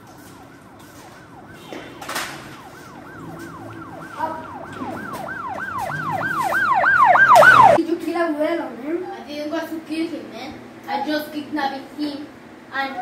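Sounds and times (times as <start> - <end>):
police siren yelping: 0.3 - 7.8.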